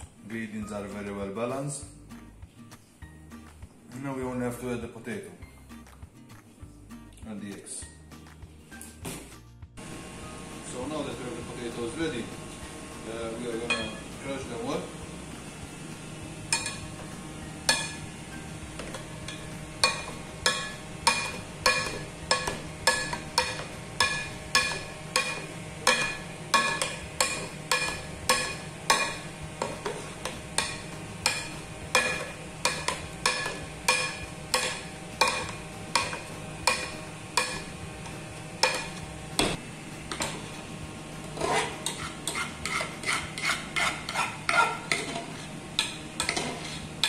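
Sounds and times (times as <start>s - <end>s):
fork clinking against metal pot: 18.9s - 30.0s, 30.6s - 37.7s, 41.4s - 46.8s.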